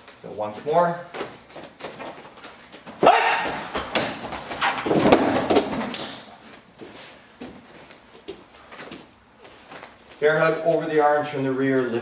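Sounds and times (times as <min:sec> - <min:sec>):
men shouting and grunting: 0:03.0 - 0:03.8.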